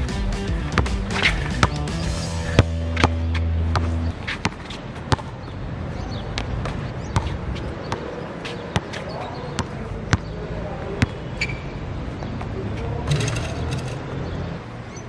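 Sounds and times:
background music: 0:00.0 - 0:04.1
basketball bouncing on hard court: 0:00.7 - 0:05.6, 0:06.2 - 0:11.6.

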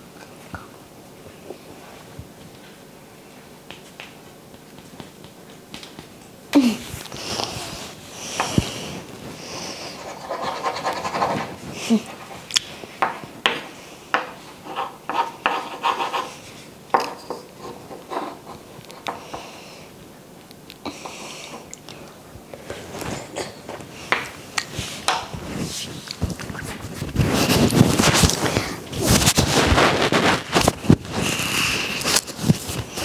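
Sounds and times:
wooden spoon scraping a plate: 0:07.8 - 0:12.5, 0:13.5 - 0:19.5.

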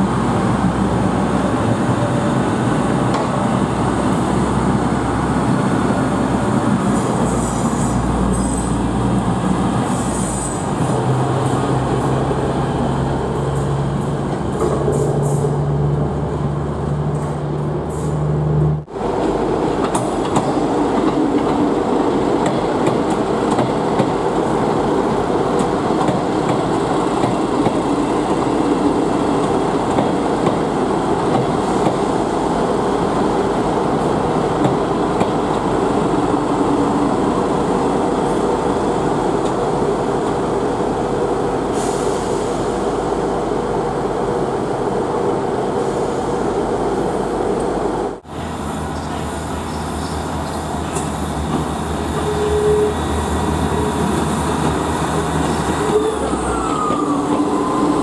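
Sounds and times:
diesel train humming: 0:00.0 - 0:58.0
train engine drone and rumble: 0:00.0 - 0:58.0
short hiss of air: 0:41.7 - 0:42.7.

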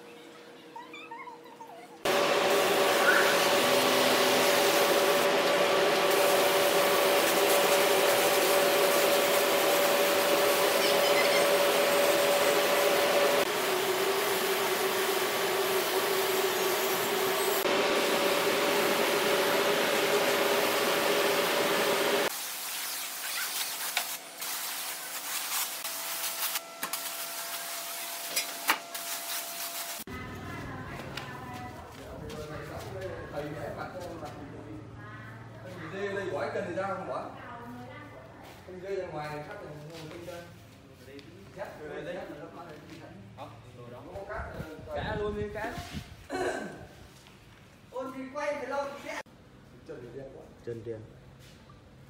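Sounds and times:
power tool running: 0:02.1 - 0:30.1.

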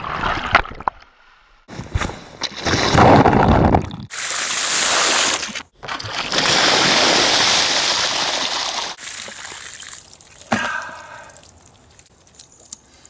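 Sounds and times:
water pouring and splashing: 0:02.4 - 0:13.0
water dripping and trickling: 0:08.6 - 0:13.0
person groaning: 0:10.5 - 0:11.4.

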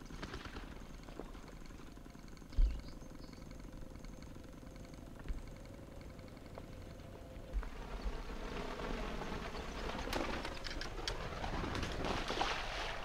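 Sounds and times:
duck wingbeats overhead: 0:07.6 - 0:13.0.

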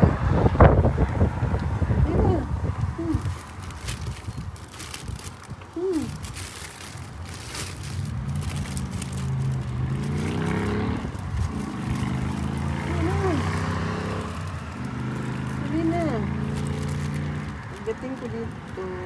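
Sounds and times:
car engine accelerating: 0:07.8 - 0:18.5.

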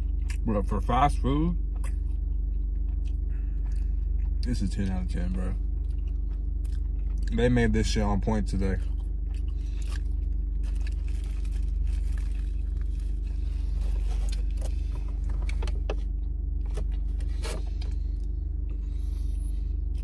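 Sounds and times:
car engine idling: 0:00.0 - 0:20.0
chewing food: 0:01.6 - 0:07.7, 0:08.6 - 0:15.7
paper wrapper rustling: 0:10.6 - 0:14.6.

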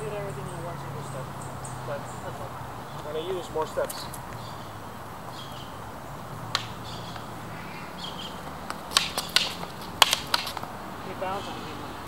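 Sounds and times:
faint birds calling: 0:00.0 - 0:12.0
practice swords clacking: 0:08.7 - 0:10.7.

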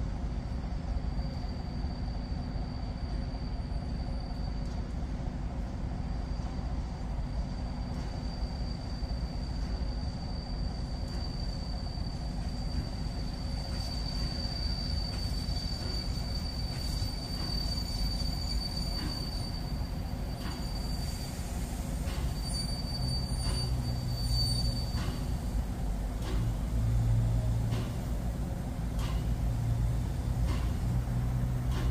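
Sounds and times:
train low rumble: 0:00.0 - 0:31.9
high-pitched wheel squeal: 0:07.6 - 0:25.6.

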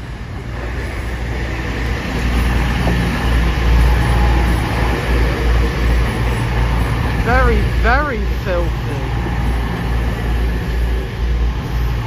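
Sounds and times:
diesel engines rumbling: 0:00.0 - 0:12.0.

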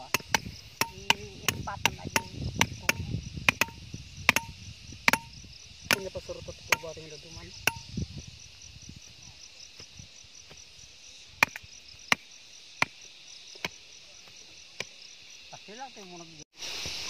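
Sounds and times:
hammer striking steel rod: 0:00.0 - 0:05.3, 0:07.7 - 0:07.9.

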